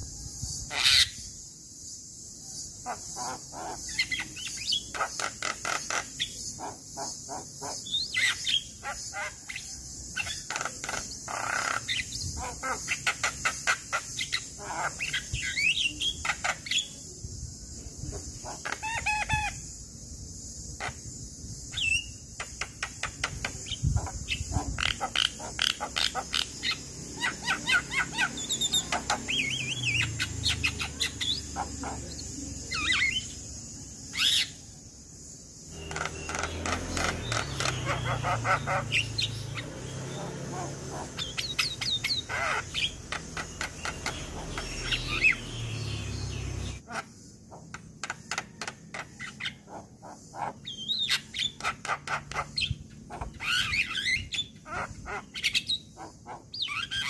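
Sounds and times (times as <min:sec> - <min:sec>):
steady high hiss: 0:00.0 - 0:36.9.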